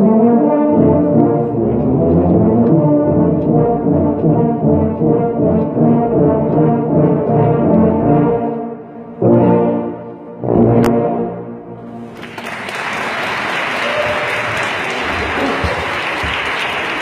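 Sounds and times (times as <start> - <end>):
applause: 12.1 - 17.0.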